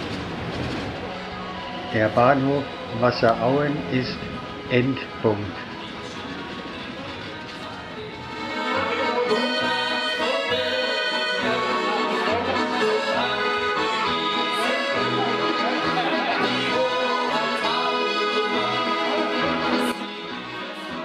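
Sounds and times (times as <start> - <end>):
accordions playing melody: 8.2 - 21.0.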